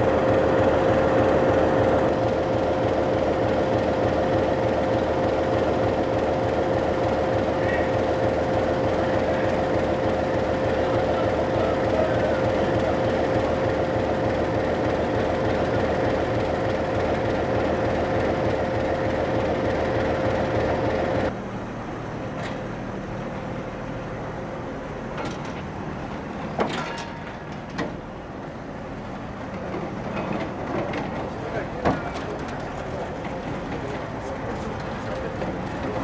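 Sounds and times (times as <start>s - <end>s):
diesel locomotive humming: 0.0s - 36.0s
freight train rumbling: 0.0s - 36.0s
sharp metallic clanks: 26.6s - 27.8s.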